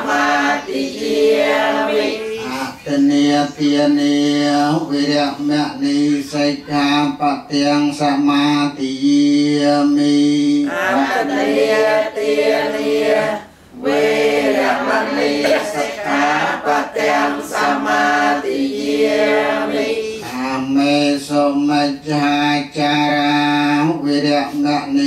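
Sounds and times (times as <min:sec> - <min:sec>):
congregation chanting in unison: 0:00.0 - 0:06.4, 0:09.1 - 0:22.0.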